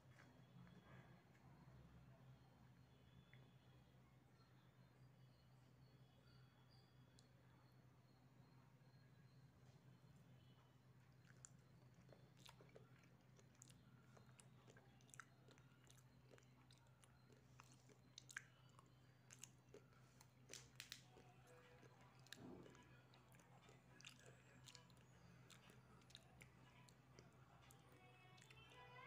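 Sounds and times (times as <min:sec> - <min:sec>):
low steady hum: 0:00.0 - 0:29.0
person chewing: 0:11.0 - 0:28.7.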